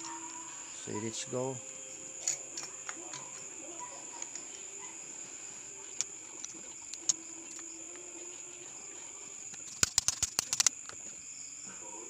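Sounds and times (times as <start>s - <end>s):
crickets chirping: 0.0s - 12.0s
engine parts clicking: 5.9s - 7.7s, 9.5s - 11.1s.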